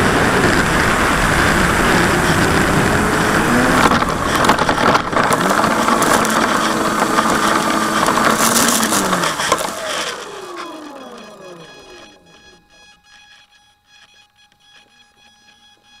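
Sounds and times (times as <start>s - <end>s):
rushing noise on microphone: 0.0s - 9.9s
model plane motor humming: 0.0s - 16.0s.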